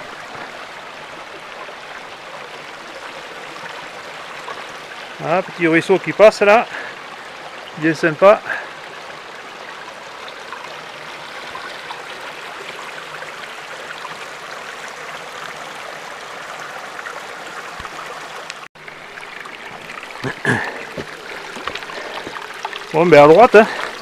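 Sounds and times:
stream babbling and rushing: 0:00.0 - 0:24.0.

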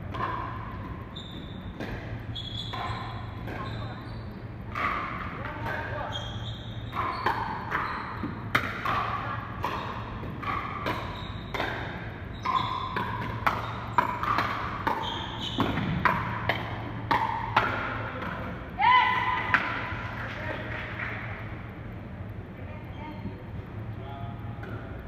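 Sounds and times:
steady low hum: 0:00.0 - 0:25.0
paddles striking balls: 0:06.8 - 0:21.3.

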